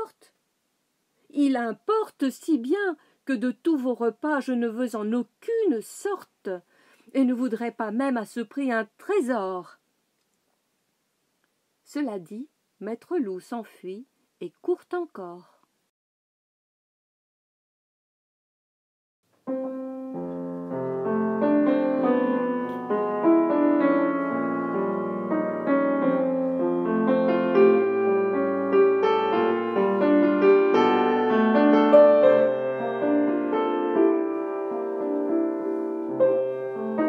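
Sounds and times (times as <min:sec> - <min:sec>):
solo piano improvisation: 0:19.5 - 0:37.0.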